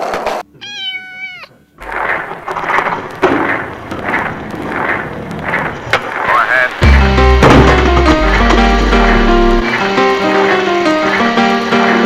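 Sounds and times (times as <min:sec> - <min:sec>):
kitten meowing: 0:00.6 - 0:01.6
hip-hop music with steady beat: 0:06.8 - 0:12.0.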